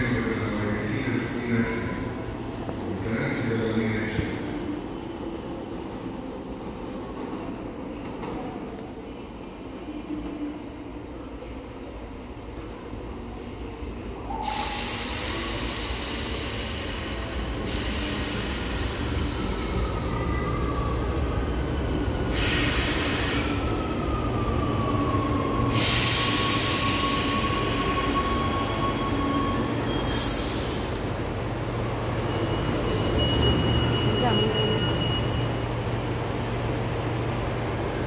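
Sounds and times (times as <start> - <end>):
train rumble braking: 14.1 - 38.0
high wheel squeal: 32.1 - 35.7.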